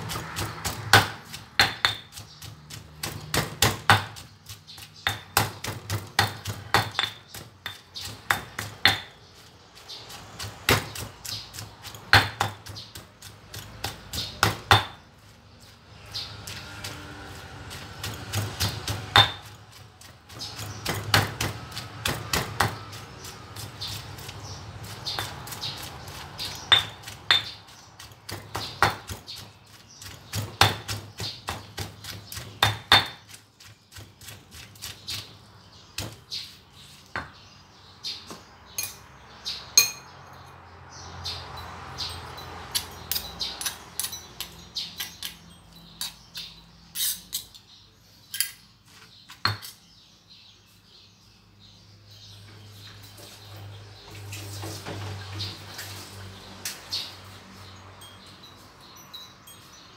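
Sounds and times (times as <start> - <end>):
stone pestle pounding in mortar: 0.0 - 15.1, 16.3 - 35.3.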